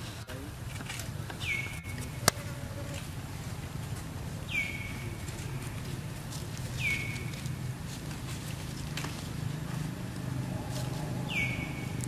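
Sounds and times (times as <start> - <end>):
steady low rumble: 0.4 - 12.0
high animal call: 1.4 - 3.1.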